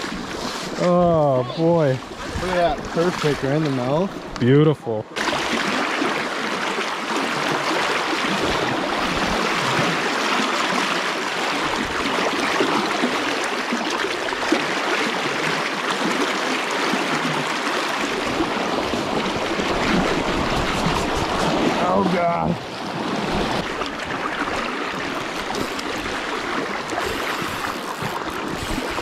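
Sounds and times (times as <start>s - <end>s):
river water rushing and splashing: 0.0s - 4.4s, 5.1s - 29.0s.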